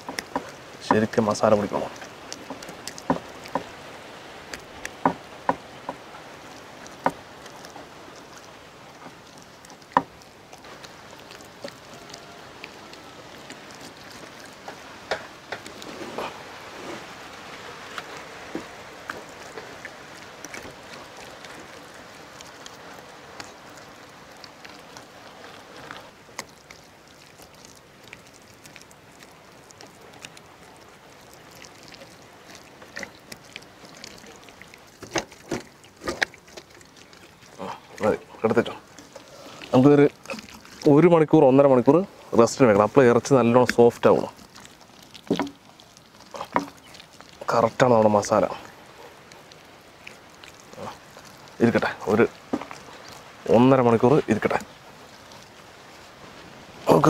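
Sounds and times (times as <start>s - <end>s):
wet squelching and smearing: 0.0s - 57.0s.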